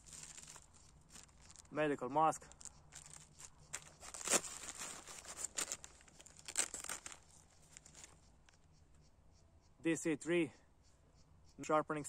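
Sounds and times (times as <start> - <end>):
hand rummaging in backpack pocket: 0.0 - 1.7, 2.5 - 8.2
plastic wrapper crinkling: 0.0 - 1.7, 2.5 - 8.2.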